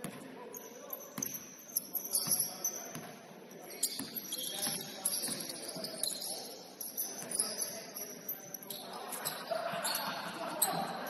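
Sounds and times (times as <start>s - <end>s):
basketball bouncing on court: 0.0s - 0.2s, 1.2s - 1.5s, 2.2s - 3.2s, 3.8s - 5.5s
faint players' voices: 0.0s - 11.0s
sneaker squeaks: 0.0s - 11.0s.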